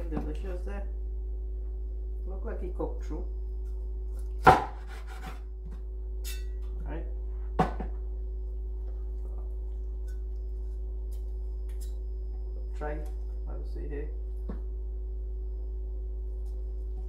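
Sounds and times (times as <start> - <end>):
steady hum: 0.0 - 17.0
cleaver chopping on wooden board: 4.4 - 5.3.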